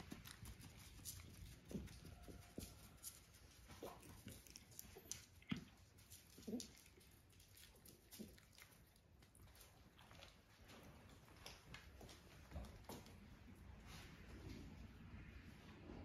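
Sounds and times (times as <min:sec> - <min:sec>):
cat licking: 0:00.0 - 0:01.9, 0:03.4 - 0:10.6.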